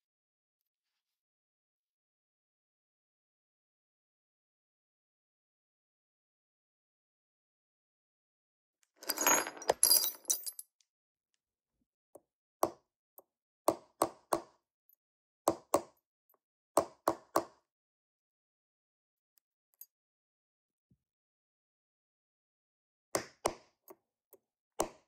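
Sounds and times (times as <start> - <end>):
metal part clinking: 9.0 - 10.6.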